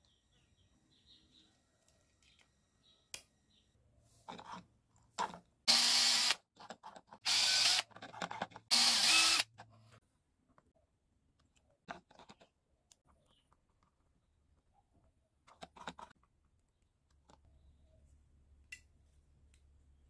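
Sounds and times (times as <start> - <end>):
cordless drill running: 5.7 - 6.4, 7.2 - 7.9, 8.7 - 9.5.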